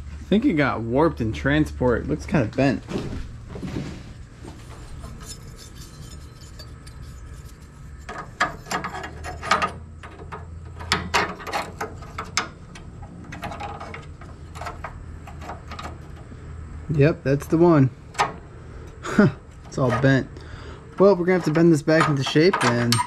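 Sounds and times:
low steady hum: 0:00.0 - 0:23.0
metal clicks and scrapes: 0:04.6 - 0:16.3, 0:18.1 - 0:20.2, 0:20.9 - 0:23.0.

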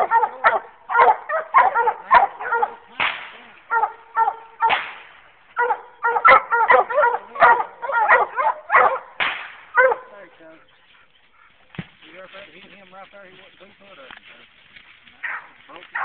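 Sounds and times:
dogs barking: 0:00.0 - 0:03.0, 0:03.6 - 0:04.9, 0:05.5 - 0:11.6, 0:15.2 - 0:16.0.

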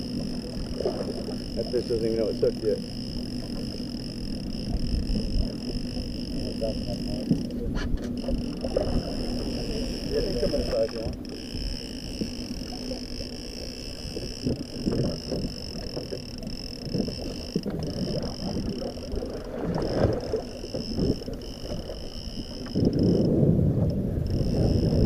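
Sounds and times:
high-pitched whine: 0:00.0 - 0:23.4
water slapping boat hull: 0:00.0 - 0:25.0
wind buffeting microphone: 0:16.8 - 0:25.0.

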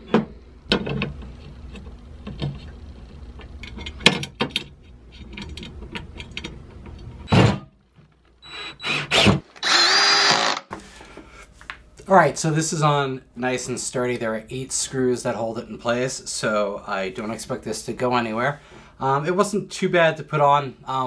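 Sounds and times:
cordless drill driving screw: 0:08.4 - 0:10.7.

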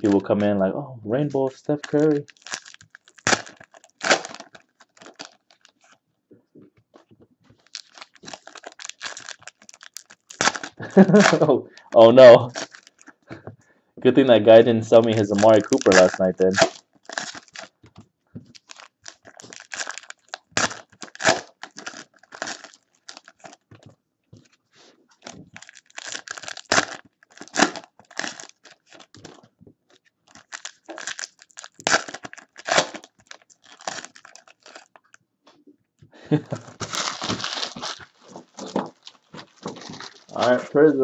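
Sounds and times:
foil wrappers tearing and crinkling: 0:01.7 - 0:06.0, 0:07.6 - 0:13.2, 0:14.9 - 0:17.8, 0:18.5 - 0:23.6, 0:25.2 - 0:29.4, 0:30.3 - 0:35.2, 0:36.5 - 0:40.8.

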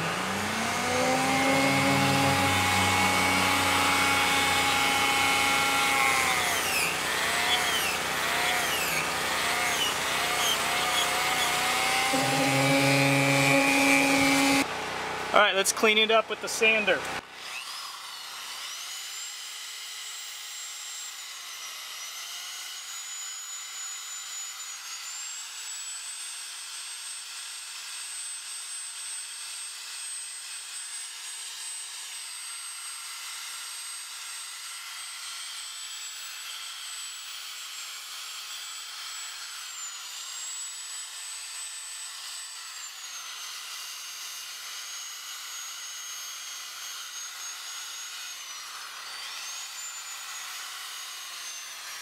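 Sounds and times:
sanding wheel rasping on wood: 0:00.0 - 0:14.7
electric drill motor whine: 0:00.0 - 0:15.4, 0:16.7 - 0:52.0.

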